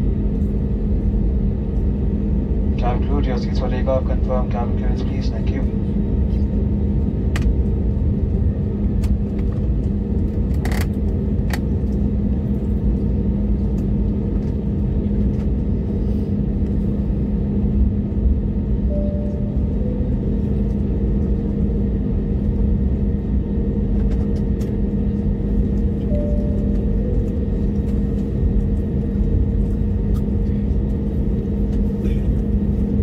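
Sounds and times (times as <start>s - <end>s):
aircraft engine hum: 0.0s - 33.0s.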